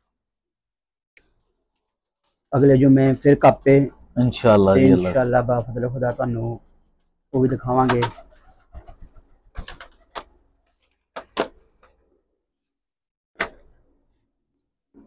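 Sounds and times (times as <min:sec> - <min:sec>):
sharp clicks and knocks: 0:07.8 - 0:08.2.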